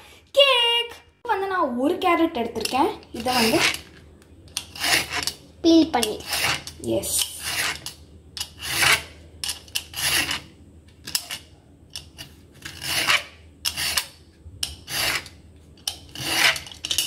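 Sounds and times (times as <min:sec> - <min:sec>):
peeler scraping carrot: 0:02.6 - 0:03.8, 0:04.6 - 0:05.4, 0:06.0 - 0:10.5, 0:12.6 - 0:17.0.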